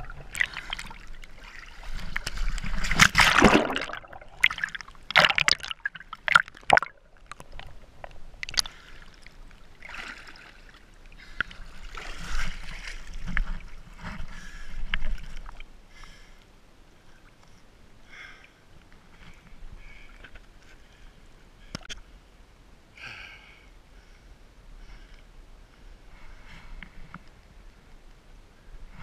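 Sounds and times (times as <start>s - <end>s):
water gurgling: 0.0s - 11.4s
water splashing and sloshing: 0.0s - 15.8s.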